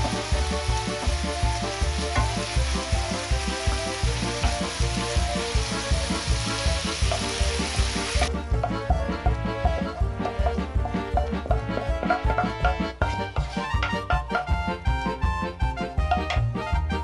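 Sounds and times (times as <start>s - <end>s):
mushrooms sizzling in oil: 0.0s - 8.3s
music with drum beat: 0.0s - 17.0s
wooden spoon stirring: 10.2s - 14.2s.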